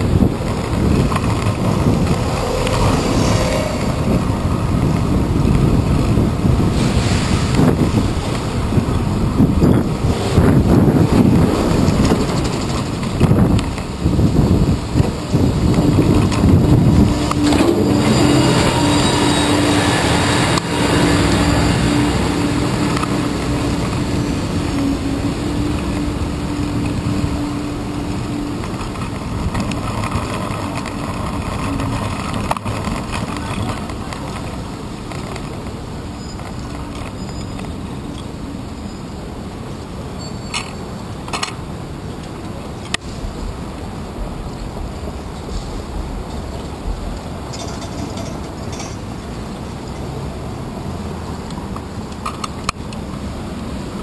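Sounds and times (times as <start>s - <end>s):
truck engine humming: 0.0s - 6.8s, 7.4s - 38.8s
bicycle tyres rumbling: 0.0s - 54.0s
wind on camera: 0.0s - 54.0s.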